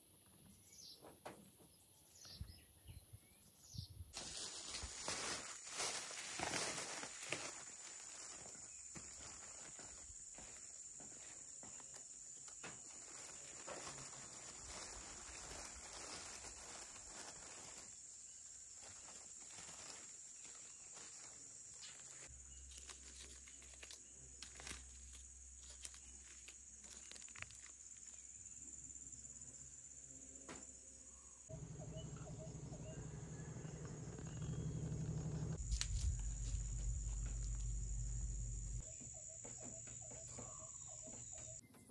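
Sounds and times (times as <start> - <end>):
low steady hum: 31.5 - 38.8.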